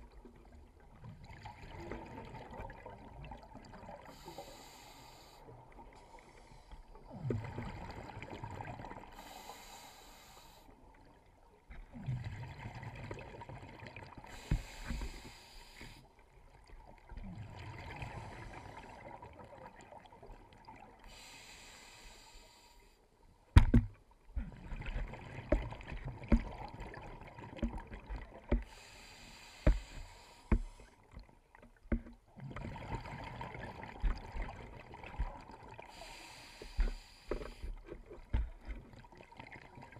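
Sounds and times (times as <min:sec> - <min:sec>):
exhaled bubbles rushing underwater: 0:00.0 - 0:04.3, 0:07.0 - 0:09.3, 0:11.9 - 0:14.8, 0:16.5 - 0:21.0, 0:24.4 - 0:28.9, 0:32.3 - 0:37.6
regulator inhale hiss: 0:04.1 - 0:05.5, 0:09.1 - 0:10.8, 0:14.3 - 0:16.1, 0:21.0 - 0:23.0, 0:28.6 - 0:31.0, 0:35.9 - 0:37.9.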